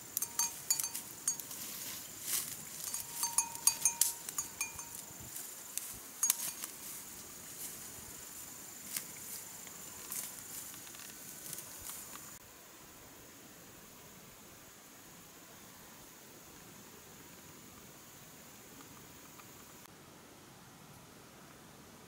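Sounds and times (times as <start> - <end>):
small bell clinking: 0.0 - 1.7, 2.8 - 5.1, 6.2 - 6.7
high insect whine: 0.0 - 12.9.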